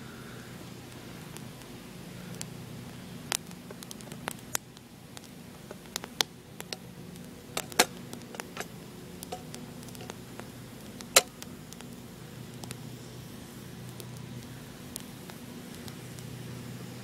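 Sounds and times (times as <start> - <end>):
campfire crackling and popping: 0.1 - 17.0.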